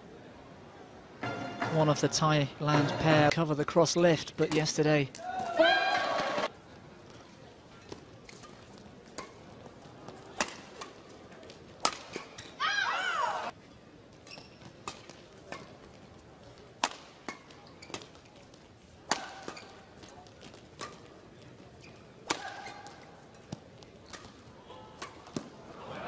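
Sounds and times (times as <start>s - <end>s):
badminton rackets striking shuttlecock: 10.4s - 11.0s, 11.8s - 12.5s, 14.3s - 15.8s, 16.8s - 18.2s, 19.1s - 19.8s, 20.8s - 21.1s, 22.2s - 24.4s, 25.0s - 25.5s.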